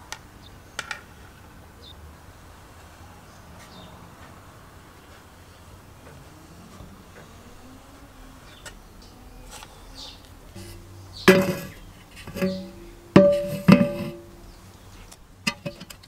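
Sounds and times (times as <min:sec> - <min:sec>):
tin can knocking: 0:10.6 - 0:14.3.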